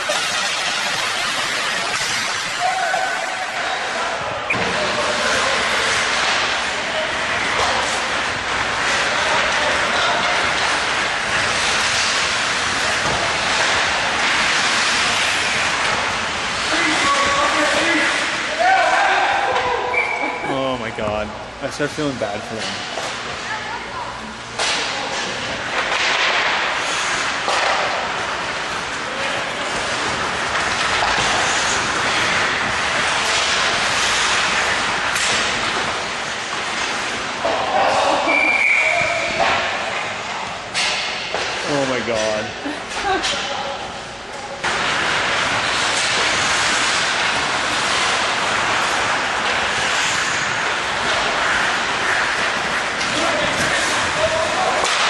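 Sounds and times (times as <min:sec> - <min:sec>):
skate blades scraping ice: 0:00.0 - 0:04.0, 0:07.4 - 0:18.8, 0:25.3 - 0:38.4, 0:44.6 - 0:55.0
hockey sticks clattering: 0:00.0 - 0:20.0, 0:24.6 - 0:38.6, 0:39.2 - 0:55.0
rink background hum: 0:00.0 - 0:55.0
ice skates scraping on ice: 0:44.7 - 0:55.0.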